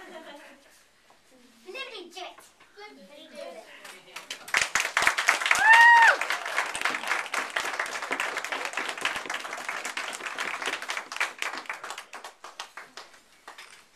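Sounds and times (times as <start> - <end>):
audience applauding: 4.2 - 13.6.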